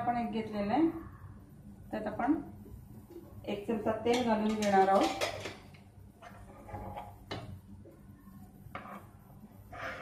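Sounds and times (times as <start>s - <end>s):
low steady hum: 0.0s - 10.0s
utensils knocking: 4.1s - 5.6s.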